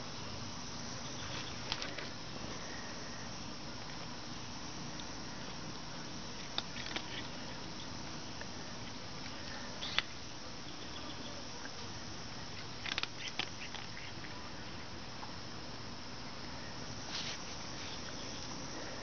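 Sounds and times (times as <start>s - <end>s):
steady outdoor hiss: 0.0s - 19.0s.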